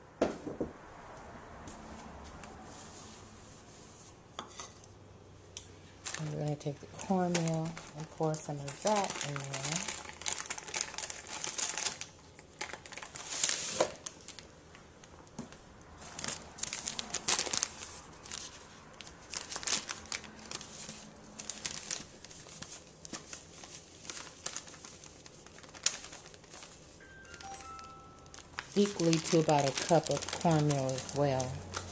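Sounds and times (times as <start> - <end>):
bag crinkling and rustling: 6.0 - 15.3, 16.0 - 31.9.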